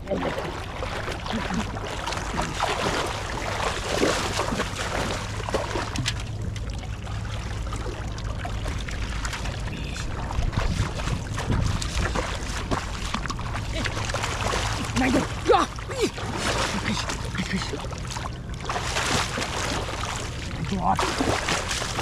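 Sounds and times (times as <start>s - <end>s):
wind rumble on microphone: 0.0s - 15.4s
pond water splashing: 0.0s - 22.0s.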